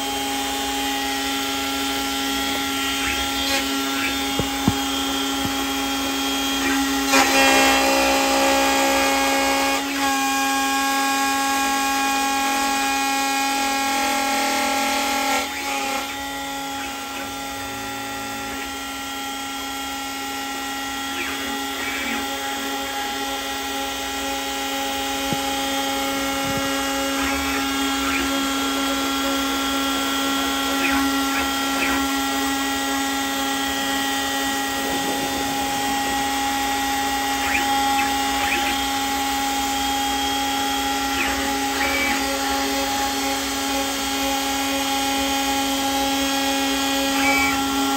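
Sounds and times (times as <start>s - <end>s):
metal cutting noise: 0.0s - 47.9s
milling machine spindle whine: 0.0s - 47.9s.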